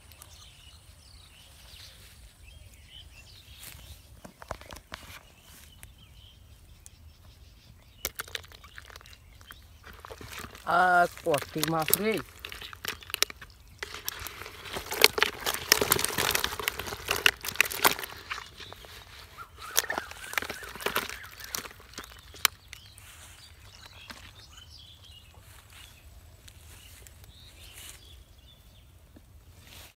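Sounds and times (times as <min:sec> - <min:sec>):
wet clicks and slaps of fish: 0:19.6 - 0:22.9.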